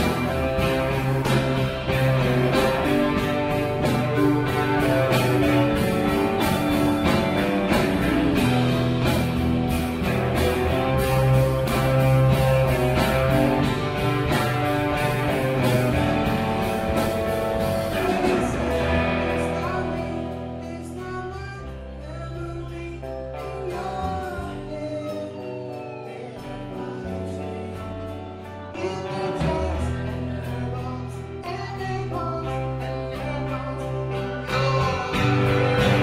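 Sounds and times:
guitar: 0.0s - 36.0s
person singing: 10.3s - 36.0s.

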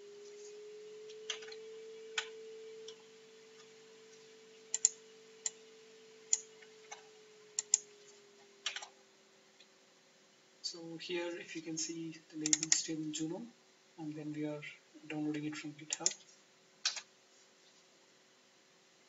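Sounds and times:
steady low hum: 0.0s - 19.0s
keyboard and mouse clicks: 1.3s - 1.6s, 4.7s - 5.6s, 6.3s - 7.9s, 8.6s - 8.9s, 12.4s - 12.8s, 15.9s - 17.1s.

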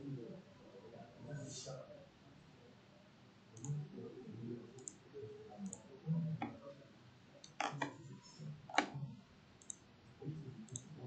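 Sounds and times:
computer mouse clicking: 4.8s - 5.0s, 8.7s - 9.8s.

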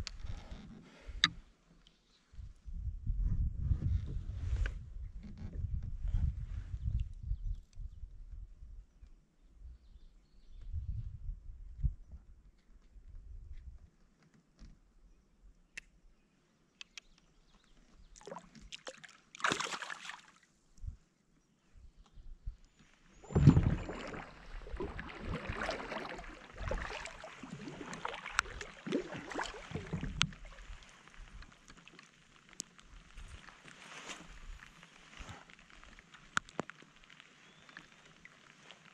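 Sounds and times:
water sloshing against kayak hull: 23.1s - 36.7s
small knocks on hull: 23.2s - 30.5s.

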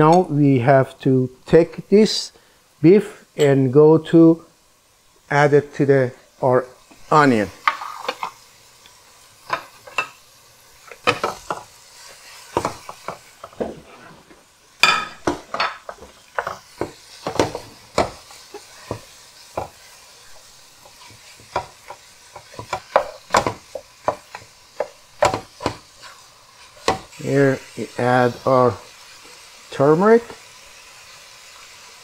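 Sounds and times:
faint frying sizzle: 0.0s - 32.0s
wooden spoon scraping pot: 7.6s - 8.3s, 12.6s - 14.4s.

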